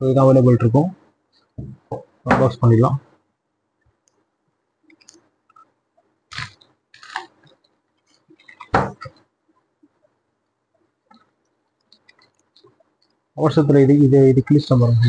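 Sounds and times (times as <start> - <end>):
packaging clicks and crinkles: 6.3 - 9.1
packaging rustling: 6.3 - 9.2.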